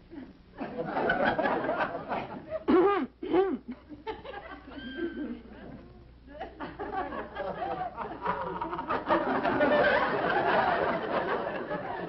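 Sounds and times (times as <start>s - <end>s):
audience laughing: 0.6s - 2.8s, 6.6s - 12.0s.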